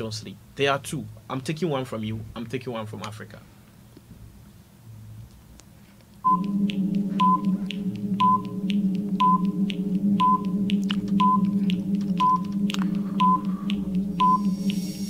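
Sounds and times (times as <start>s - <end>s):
high beep and tick: 6.2s - 14.8s
low drone: 6.2s - 15.0s.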